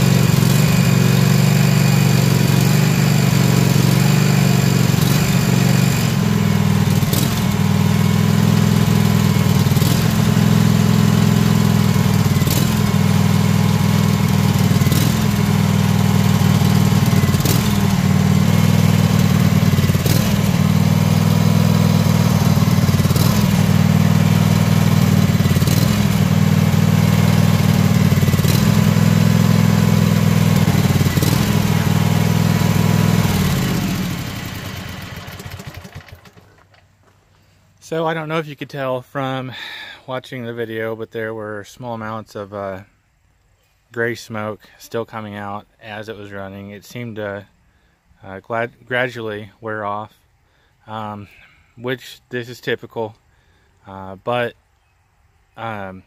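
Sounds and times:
lawn mower engine idling: 0.0 - 38.2.

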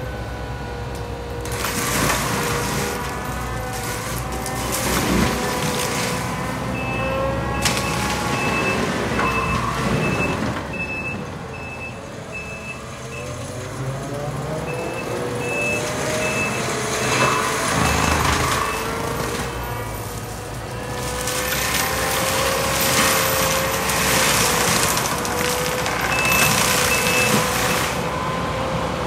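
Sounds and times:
diesel engine and mulcher running: 0.0 - 29.0
reverse alarm beeping: 6.8 - 13.4, 14.7 - 19.0, 26.2 - 27.5.

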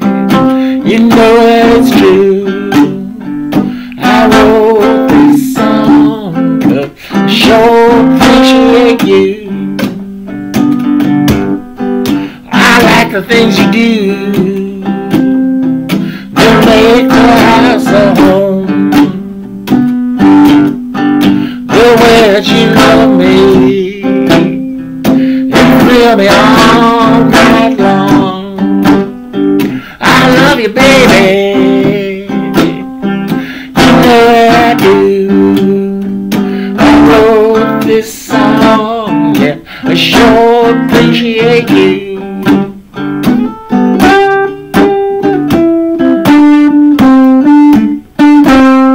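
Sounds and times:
man singing: 0.0 - 10.0, 12.2 - 19.3, 21.3 - 42.8
acoustic guitar strumming: 0.0 - 48.9.

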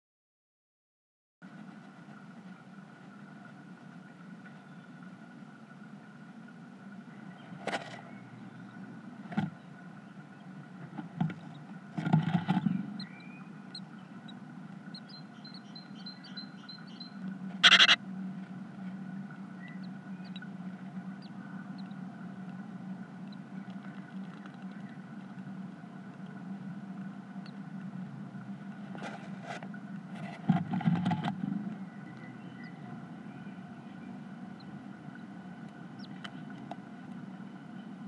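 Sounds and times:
steady low hum: 1.4 - 38.0
chicks peeping: 12.4 - 18.0, 19.6 - 20.5, 21.1 - 22.0, 36.0 - 36.4.

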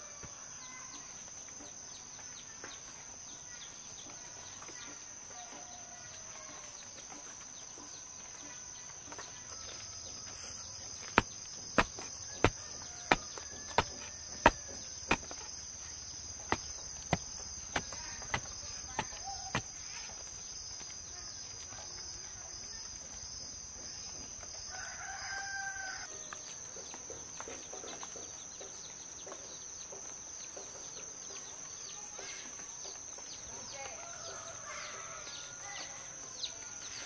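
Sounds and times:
high insect drone: 0.0 - 28.0
sharp knocks: 11.1 - 15.5
rooster crowing: 12.2 - 14.9, 24.6 - 26.1, 33.9 - 36.0.

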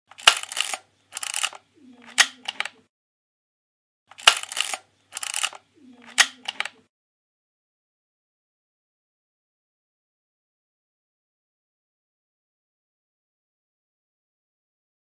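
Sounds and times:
camera shutter click: 0.1 - 1.6, 4.1 - 5.6.

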